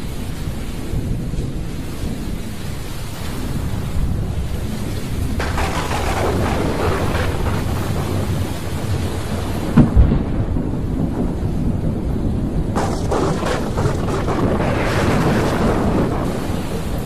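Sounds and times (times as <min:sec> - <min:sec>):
rain hissing: 0:00.0 - 0:17.0
thunder rumbling: 0:00.0 - 0:17.0
thunder cracks: 0:05.2 - 0:17.0.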